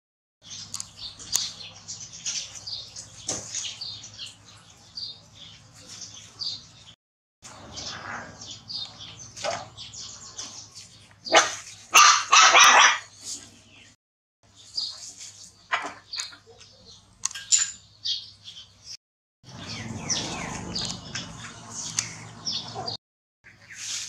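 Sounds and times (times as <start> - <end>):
puppy yelping: 11.3 - 13.1.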